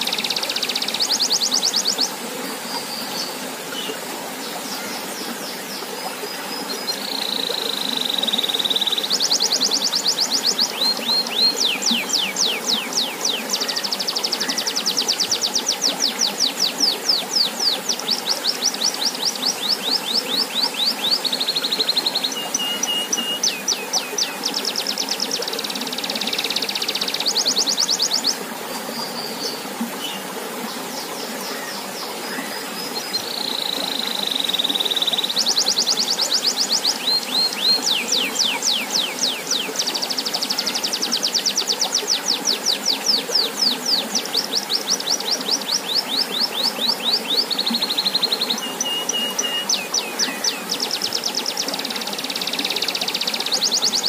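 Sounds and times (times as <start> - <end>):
fountain water pouring into pond: 0.0 - 54.0
canary singing trills: 33.1 - 54.0.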